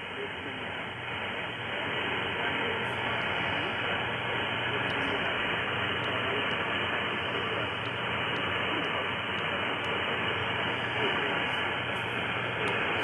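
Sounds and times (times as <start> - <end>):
radio static hiss: 0.0 - 13.0
faint clicks: 6.0 - 13.0.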